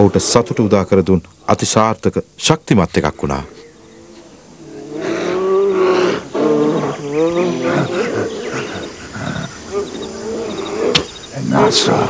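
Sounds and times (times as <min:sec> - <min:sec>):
wordless gliding vocal calls: 0:03.7 - 0:12.0.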